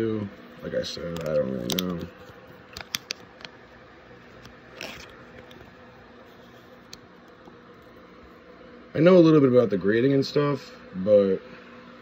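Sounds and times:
faint steady hum: 0.0s - 12.0s
plastic sleeve scrape: 4.7s - 6.8s.

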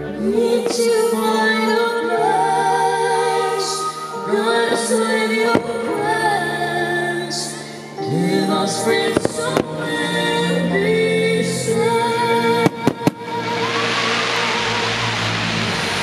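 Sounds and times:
woman singing with music: 0.0s - 15.4s
fireworks bangs: 12.6s - 16.0s.

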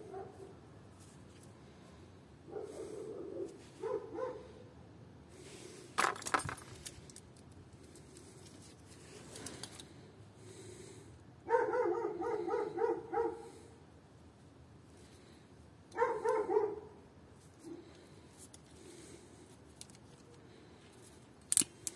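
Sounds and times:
dog yapping: 11.5s - 13.5s, 16.0s - 16.9s.

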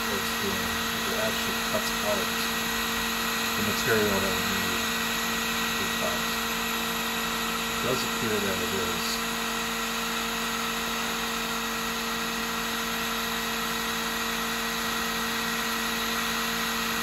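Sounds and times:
laser engraver fans humming: 0.0s - 17.0s.

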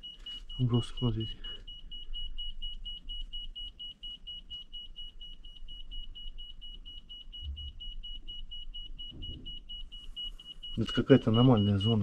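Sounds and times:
rapid high-pitched alarm beeps: 0.0s - 12.0s.

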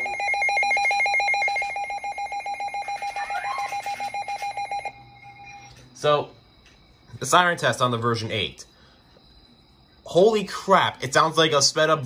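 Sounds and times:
fast electronic beeping siren: 0.0s - 5.8s.

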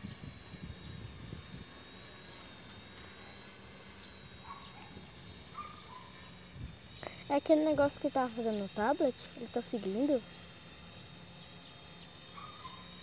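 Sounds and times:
wind buffeting microphone: 0.0s - 1.8s
insects hissing: 0.0s - 13.0s.

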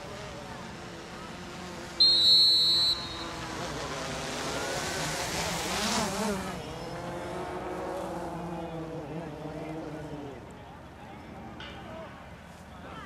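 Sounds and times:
road vehicle passing: 0.0s - 12.9s
sports whistle blast: 2.0s - 3.4s.

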